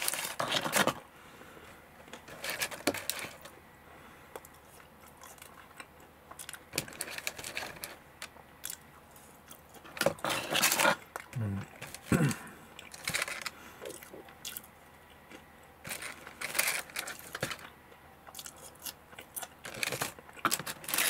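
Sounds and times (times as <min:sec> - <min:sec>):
person chewing fries: 0:04.3 - 0:21.0.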